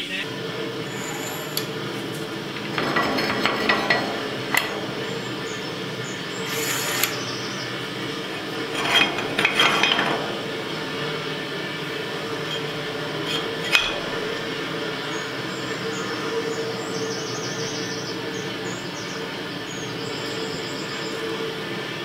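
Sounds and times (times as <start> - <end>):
steady low hum: 0.0 - 22.0
steel clinks and scrapes: 0.8 - 14.6.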